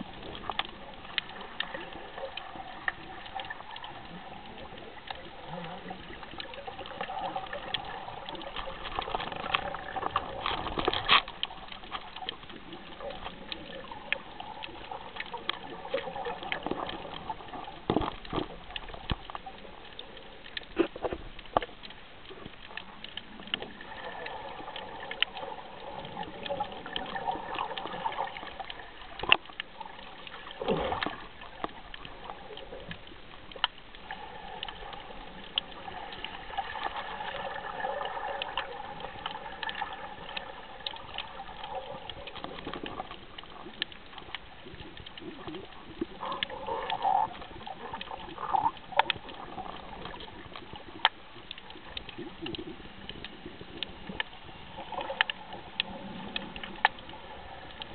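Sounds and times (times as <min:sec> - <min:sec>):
water sloshing and splashing: 0:00.0 - 0:57.9.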